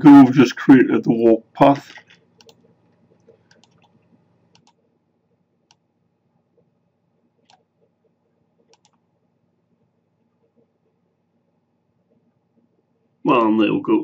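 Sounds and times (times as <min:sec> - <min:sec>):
faint computer clicks: 0:02.1 - 0:04.8, 0:07.4 - 0:09.0.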